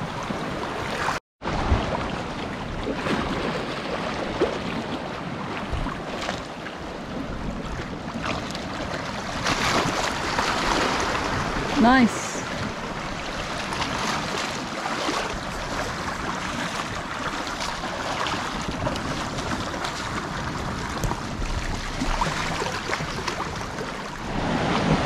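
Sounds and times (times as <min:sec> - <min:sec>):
wind: 0:00.0 - 0:25.0
wind buffeting microphone: 0:00.0 - 0:25.0
small waves washing over rocks: 0:07.4 - 0:25.0.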